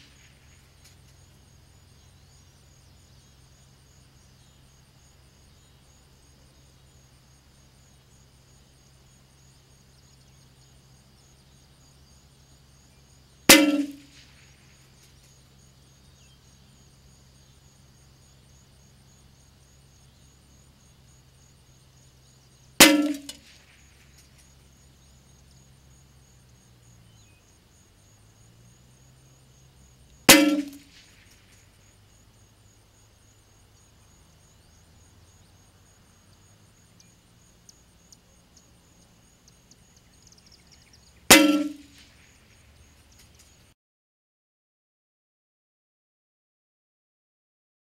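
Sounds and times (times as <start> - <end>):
rifle shots: 13.5 - 14.4, 22.8 - 23.8, 30.3 - 31.4.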